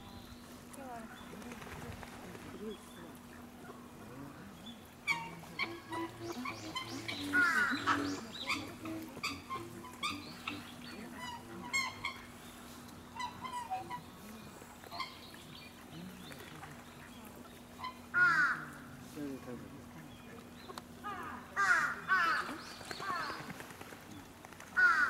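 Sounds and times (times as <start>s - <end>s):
swans honking: 4.8s - 16.1s, 17.6s - 19.0s.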